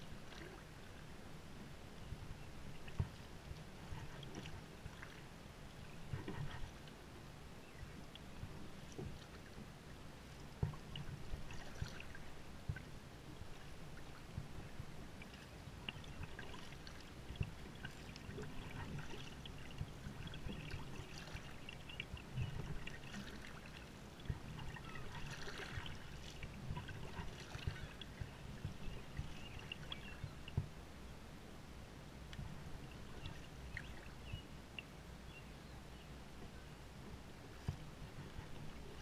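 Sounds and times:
water splashes: 0:00.0 - 0:01.2, 0:02.7 - 0:07.1, 0:07.9 - 0:30.7
paddle strokes in water: 0:00.0 - 0:30.8, 0:32.3 - 0:34.9, 0:36.2 - 0:39.0
water swishing along hull: 0:00.0 - 0:39.0.

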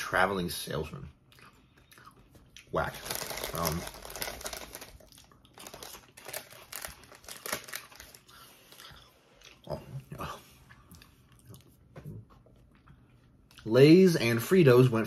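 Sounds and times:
potato chips being chewed: 0:01.3 - 0:13.7
foil chip bag rustling: 0:02.8 - 0:08.8.

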